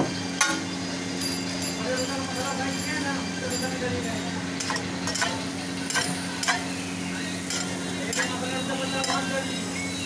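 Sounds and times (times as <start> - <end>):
batter sizzling on griddle: 0.1 - 10.0
metal spatula scraping griddle: 4.6 - 9.8.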